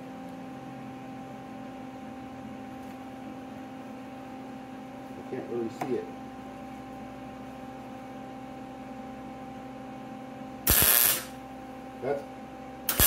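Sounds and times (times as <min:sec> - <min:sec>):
electrical hum: 0:00.0 - 0:13.0
welding arc crackle: 0:10.7 - 0:11.4.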